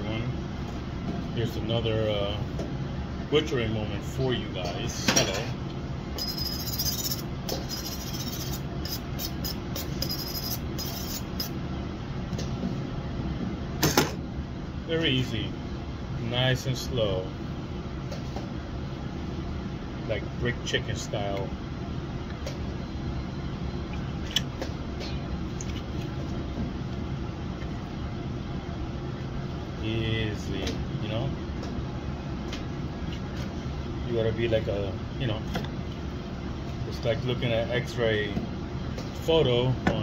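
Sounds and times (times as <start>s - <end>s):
steady low hum: 0.0s - 40.0s
knife scraping on honing steel: 6.2s - 11.5s.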